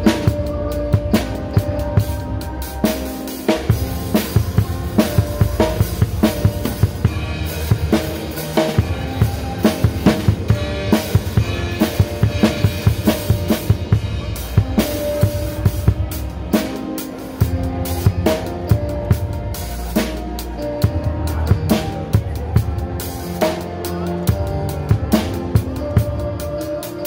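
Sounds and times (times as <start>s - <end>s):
drum kit played with sticks: 0.0s - 27.0s
held notes from band instruments: 0.0s - 27.0s.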